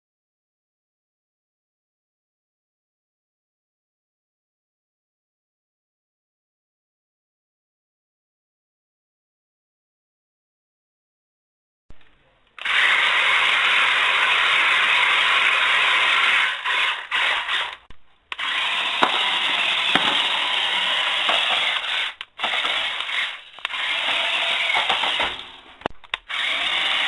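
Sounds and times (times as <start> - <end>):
toy tank motor whirr: 12.6 - 27.0.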